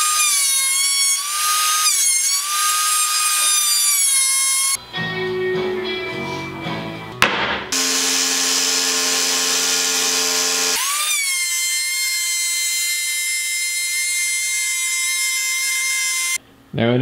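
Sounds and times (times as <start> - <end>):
sharp knock: 7.2 - 7.8
electric router whining: 7.7 - 16.4.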